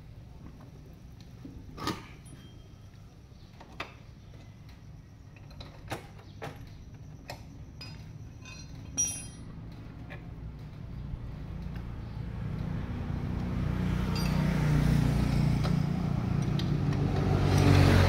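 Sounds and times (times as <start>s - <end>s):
metal tools clinking and knocking: 5.3s - 9.8s, 14.1s - 14.6s.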